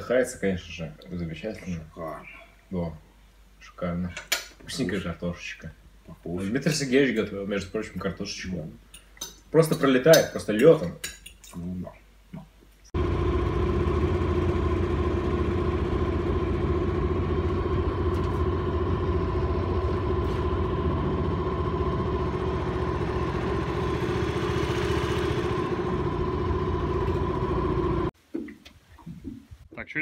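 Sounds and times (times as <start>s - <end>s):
outboard motor running: 13.0s - 28.1s.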